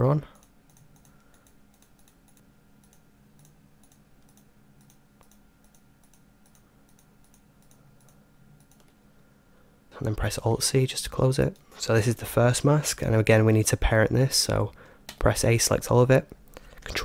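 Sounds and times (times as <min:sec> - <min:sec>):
low electrical hum: 0:00.0 - 0:17.0
faint computer mouse clicks: 0:00.4 - 0:09.0.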